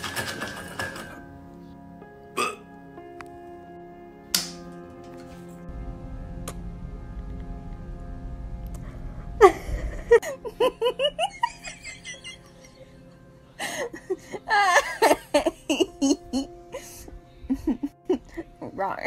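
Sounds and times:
background music: 0.0 - 19.0
giggling laughter: 9.4 - 13.0, 13.6 - 18.6.

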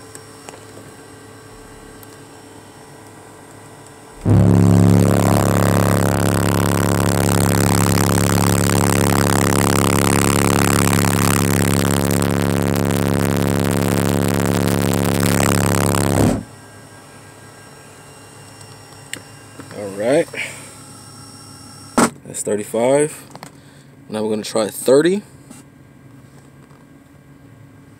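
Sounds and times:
subwoofer low test tone drone: 4.2 - 16.5.

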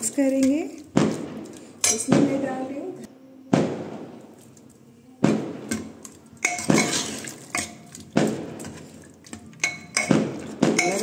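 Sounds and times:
firecracker bangs: 3.5 - 4.2, 5.2 - 5.9
ladle clinking on pressure cooker: 9.6 - 10.2, 10.8 - 11.0.

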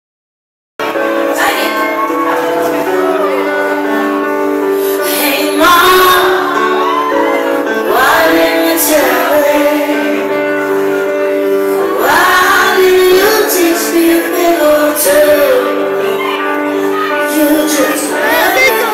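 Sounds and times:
keyboard chords: 0.8 - 18.9
woman singing: 5.0 - 10.2, 12.0 - 18.9.

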